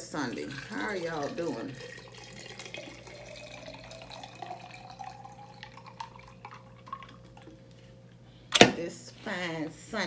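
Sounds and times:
liquid pouring into a glass jar: 0.0s - 7.8s
drips: 0.0s - 8.2s.

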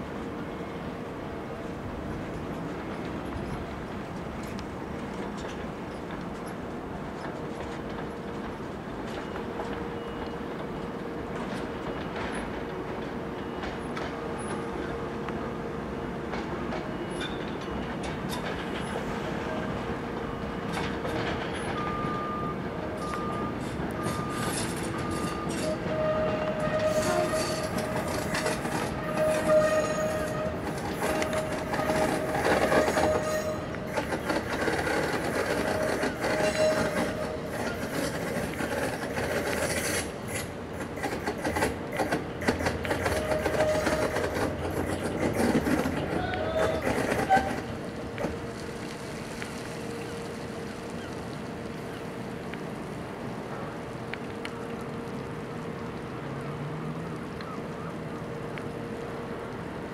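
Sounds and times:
train rolling over track: 0.0s - 54.6s.

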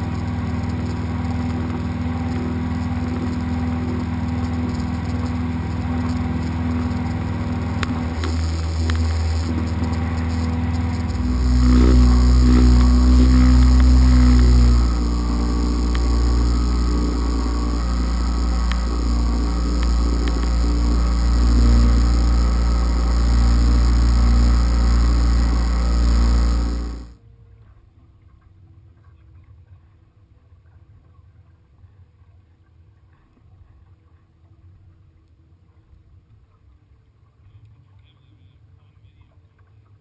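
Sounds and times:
boat motor droning: 0.0s - 27.6s.

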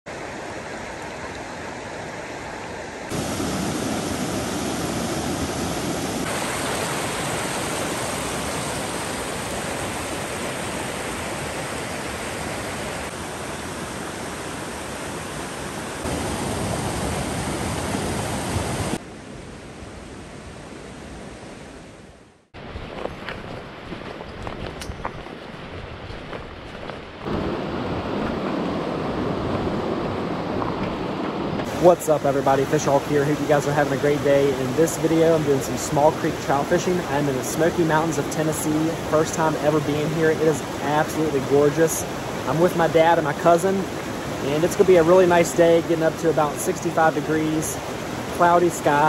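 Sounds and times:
creek rushing over stones: 0.1s - 19.0s, 31.6s - 49.0s.

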